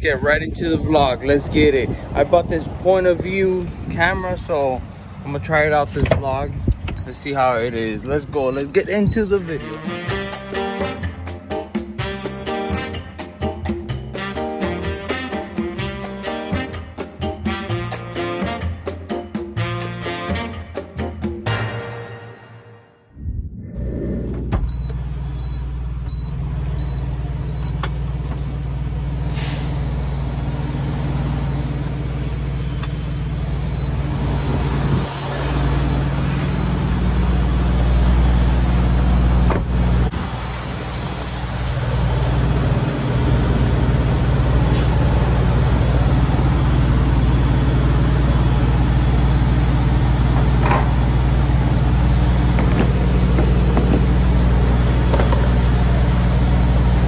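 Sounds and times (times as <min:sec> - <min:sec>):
diesel truck engine idling: 0:24.6 - 0:57.0
short air hisses: 0:29.2 - 0:30.0.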